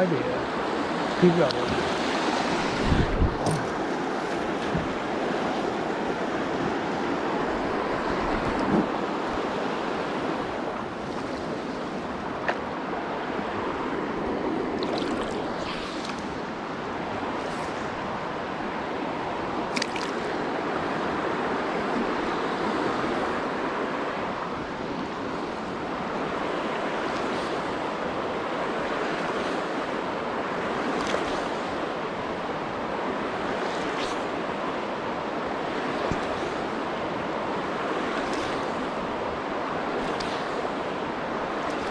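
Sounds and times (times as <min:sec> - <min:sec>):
river rushing over rocks: 0:25.6 - 0:41.9.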